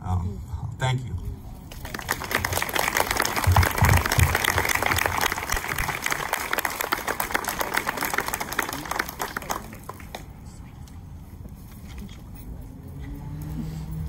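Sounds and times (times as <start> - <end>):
audience applauding: 1.7 - 10.3.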